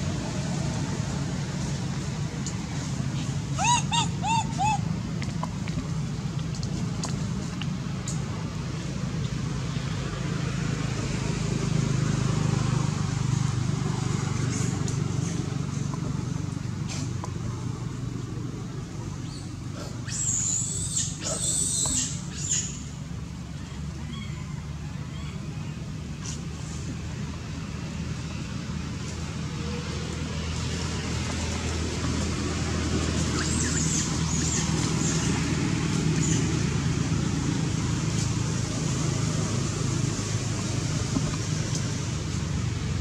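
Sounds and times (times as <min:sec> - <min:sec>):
monkey screams: 0:03.5 - 0:04.9, 0:20.0 - 0:22.8.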